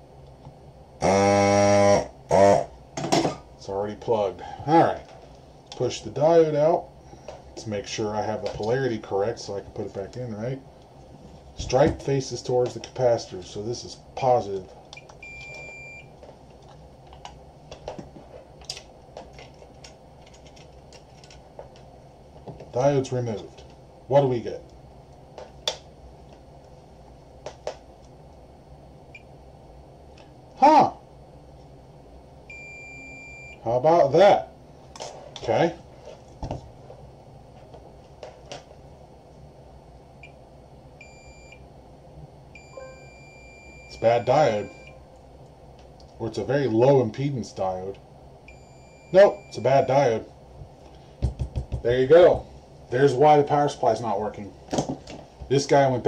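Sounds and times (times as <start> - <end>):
multimeter beep: 15.0 - 16.1, 32.5 - 33.6, 41.0 - 41.6, 42.6 - 45.0, 48.5 - 50.0.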